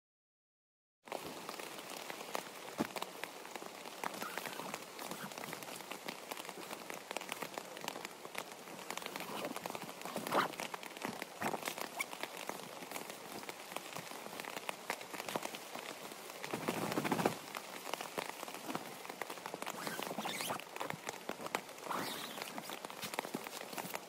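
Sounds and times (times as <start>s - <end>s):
rain pattering on tent: 1.0s - 24.0s
tent fabric rustling: 3.9s - 13.6s, 15.1s - 24.0s.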